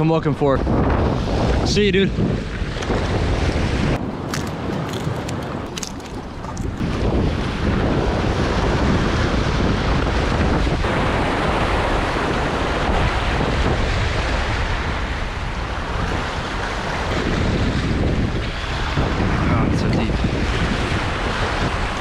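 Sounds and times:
wind buffeting microphone: 0.0s - 22.0s
waves breaking against rocks: 3.9s - 9.0s.

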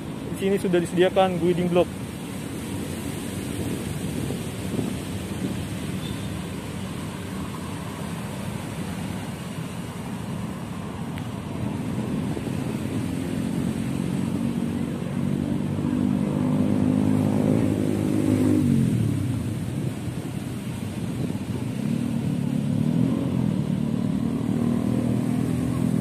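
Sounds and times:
traffic rumble: 0.0s - 26.0s
vehicle engine passing: 11.7s - 26.0s.

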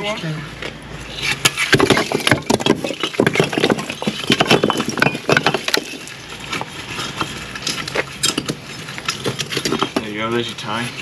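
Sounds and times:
bricks clattering onto a heap: 1.5s - 10.2s.

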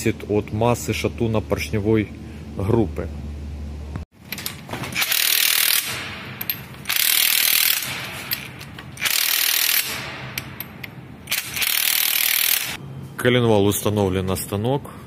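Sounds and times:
power driver running: 5.0s - 12.8s.

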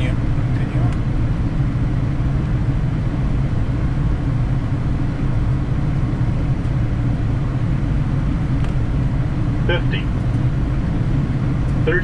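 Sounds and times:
airplane cockpit rumble: 0.0s - 12.0s.

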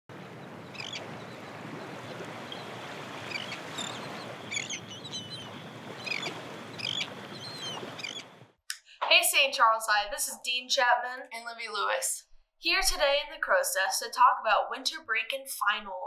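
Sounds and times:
waves washing: 0.1s - 8.5s
chirping bird calls: 0.3s - 8.4s.

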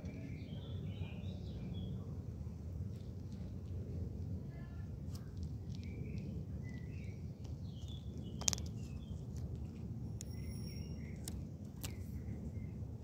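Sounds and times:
steady low rumble: 0.0s - 13.0s
bird chirps: 5.8s - 9.2s, 10.2s - 12.0s.

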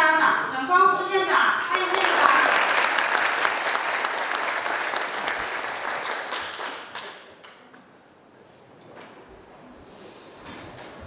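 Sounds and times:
audience applauding: 1.6s - 7.5s.

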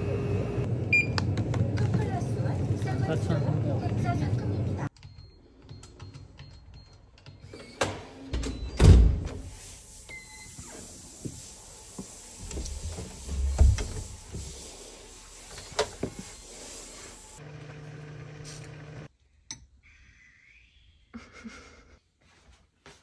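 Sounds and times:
door opening and swinging shut: 7.7s - 9.4s.

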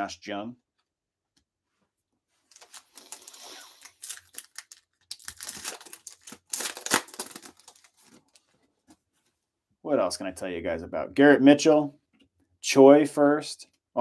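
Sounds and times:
foil wrapper crinkling and tearing: 2.5s - 8.5s.

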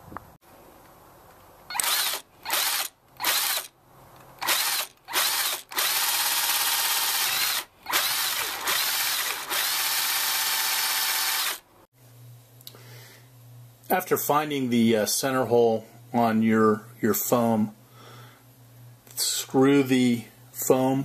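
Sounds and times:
power drill boring through plastic: 1.7s - 3.7s, 4.4s - 11.6s.

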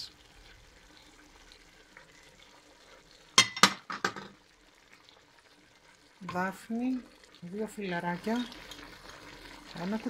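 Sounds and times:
food sizzling in a pot: 0.0s - 10.0s
glass bowl clinking: 3.4s - 4.4s.

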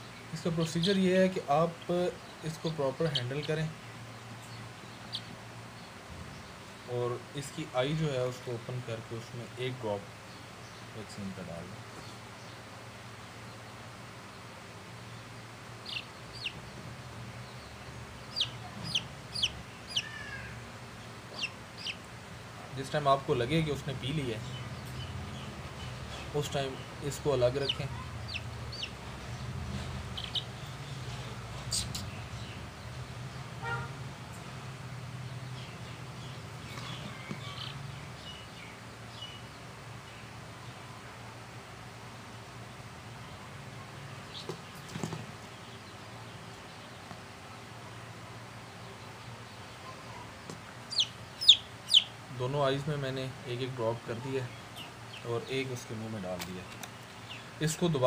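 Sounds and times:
chick peeping: 4.4s - 5.3s, 15.8s - 16.7s, 17.6s - 20.3s, 21.3s - 22.1s, 26.2s - 32.3s, 36.6s - 37.9s, 49.8s - 52.2s.

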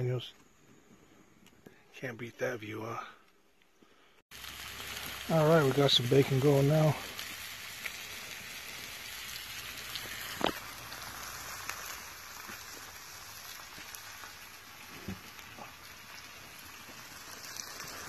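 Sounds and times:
bacon sizzling on griddle: 4.3s - 18.0s.

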